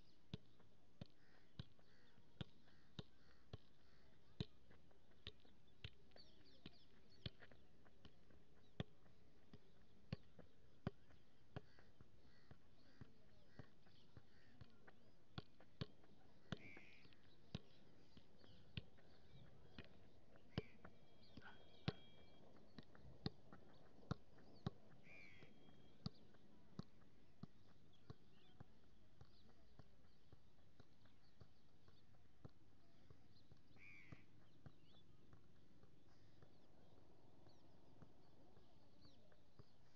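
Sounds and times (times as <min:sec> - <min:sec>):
bird calling: 0:16.6 - 0:17.1, 0:25.0 - 0:26.0, 0:33.8 - 0:34.2.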